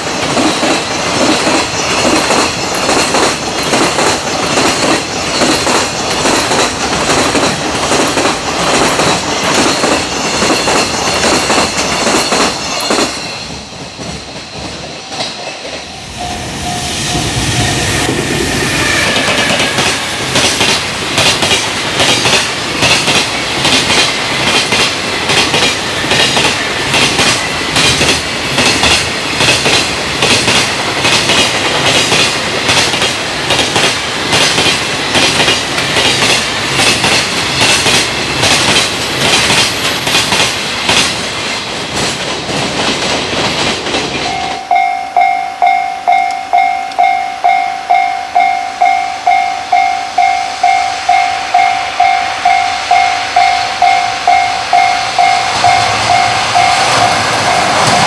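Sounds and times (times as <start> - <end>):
train wheels clattering: 0.0 - 44.7, 52.9 - 58.0
pulsing warning tone: 15.9 - 19.6.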